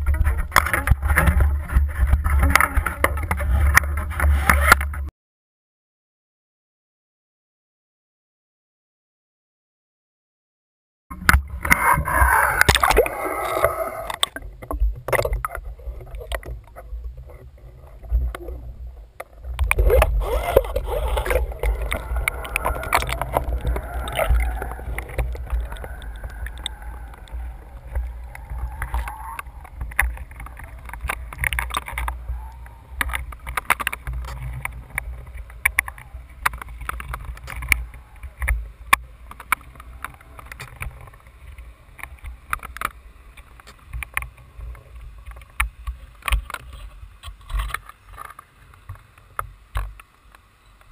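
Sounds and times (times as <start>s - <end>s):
muffled underwater gurgling: 0.0s - 5.1s, 11.1s - 41.3s
steady low rumble: 11.1s - 40.4s.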